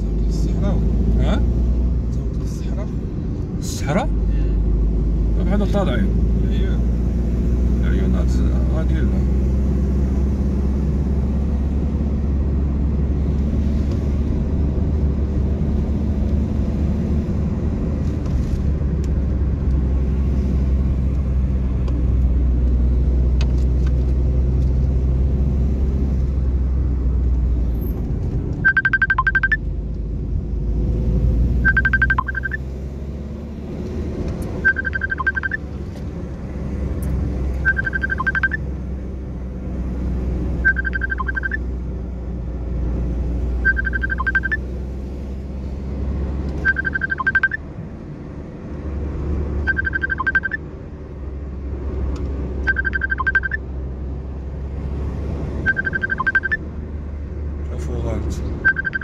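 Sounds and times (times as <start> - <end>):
car rumbling: 0.0 - 59.0
high beep: 28.6 - 29.6, 31.6 - 32.6, 34.6 - 35.6, 37.6 - 38.6, 40.6 - 41.6, 43.6 - 44.6, 46.6 - 47.6, 49.6 - 50.6, 52.6 - 53.6, 55.7 - 56.6, 58.6 - 59.0.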